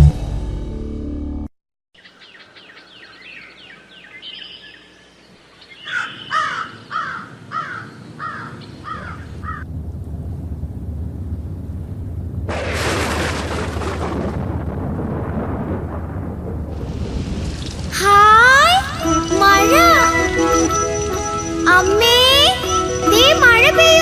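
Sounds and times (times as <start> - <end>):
repeated bird calls: 2.0 - 9.7
high downward chirps: 18.0 - 24.0.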